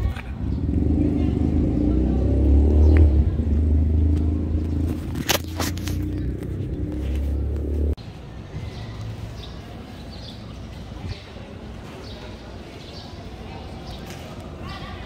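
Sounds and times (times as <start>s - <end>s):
vehicle engine rumbling: 0.0s - 8.2s
outdoor background: 0.0s - 15.0s.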